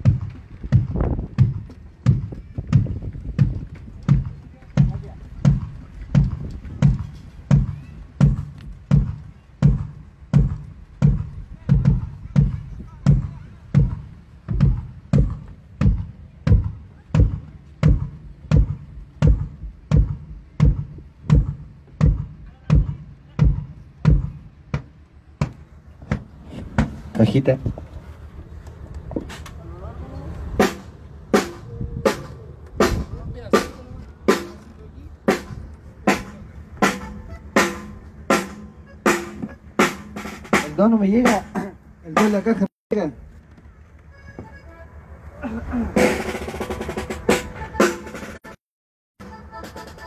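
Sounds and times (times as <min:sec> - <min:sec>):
drum hits: 0:00.0 - 0:27.0, 0:30.6 - 0:34.6, 0:35.3 - 0:42.7.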